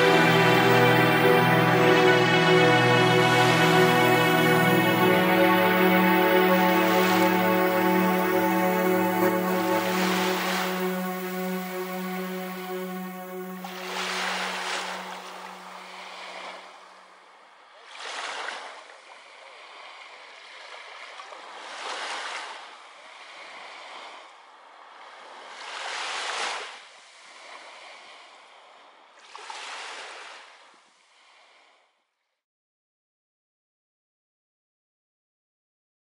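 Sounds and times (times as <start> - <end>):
held music chord: 0.0 - 16.7
waves breaking: 0.0 - 31.8.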